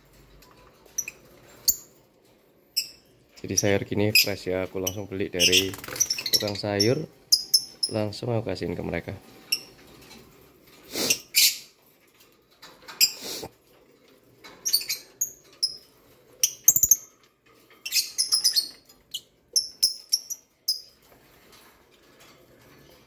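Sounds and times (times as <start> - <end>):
lovebirds chirping: 2.8 - 8.1, 14.6 - 17.1, 17.8 - 21.0
harsh bird calls: 3.4 - 8.1.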